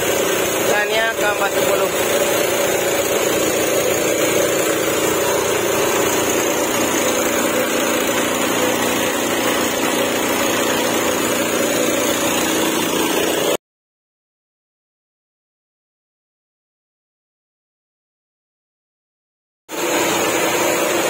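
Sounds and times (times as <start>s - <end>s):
air compressor running with hiss: 0.0s - 13.6s, 19.7s - 21.0s.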